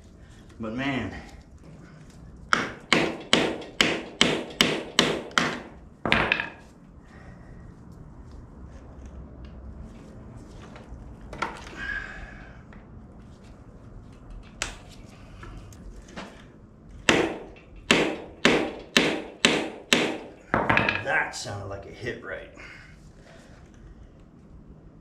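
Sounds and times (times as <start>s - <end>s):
hammer striking metal punch: 2.5s - 6.6s, 17.0s - 21.1s.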